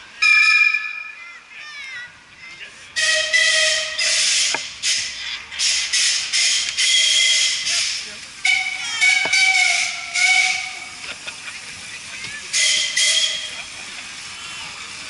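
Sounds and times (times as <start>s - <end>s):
chord-like steam whistle blast: 3.0s - 4.5s, 5.9s - 7.7s, 8.4s - 11.0s, 12.5s - 13.6s
lower hissing steam whistle: 3.0s - 11.0s, 12.5s - 13.8s.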